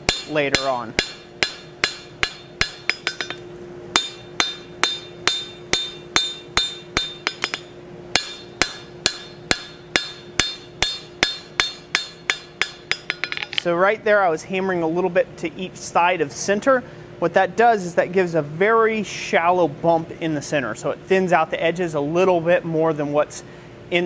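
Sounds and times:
hammer striking steel on anvil: 0:00.0 - 0:13.7.

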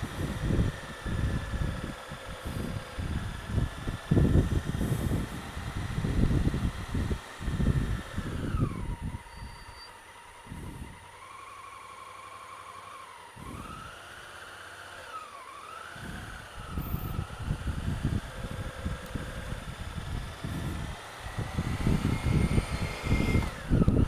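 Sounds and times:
motorcycle engine running: 0:00.0 - 0:24.0
gusts of low noise: 0:16.0 - 0:24.0.

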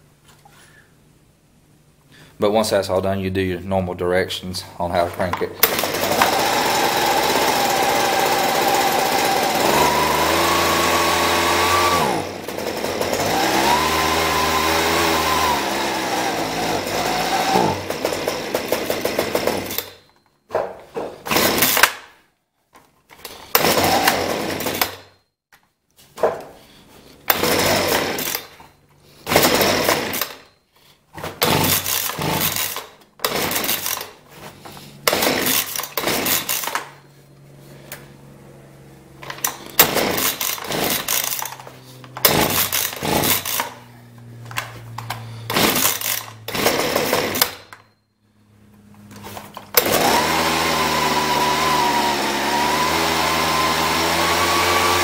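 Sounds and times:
starter cord pulls cranking: 0:05.3 - 0:20.2, 0:23.1 - 0:25.2, 0:27.3 - 0:30.5, 0:31.3 - 0:34.2, 0:35.0 - 0:37.0, 0:39.2 - 0:48.0, 0:49.1 - 0:55.0
leaf blower engine revving: 0:05.6 - 0:19.9, 0:23.5 - 0:25.0, 0:27.3 - 0:28.5, 0:29.2 - 0:30.4, 0:31.4 - 0:36.8, 0:37.6 - 0:47.6, 0:48.8 - 0:55.0.

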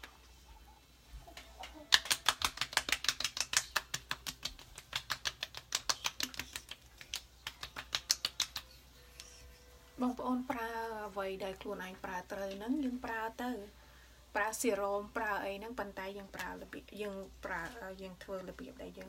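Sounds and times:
palms slapping wet skin: 0:01.4 - 0:09.4.

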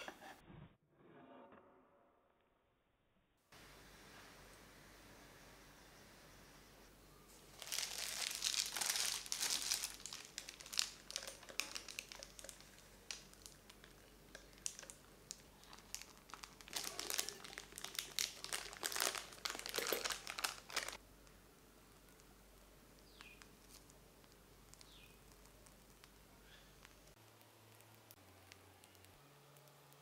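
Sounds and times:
small crackles: 0:07.4 - 0:21.4, 0:22.0 - 0:30.0
plastic bag crinkling: 0:07.5 - 0:21.0.

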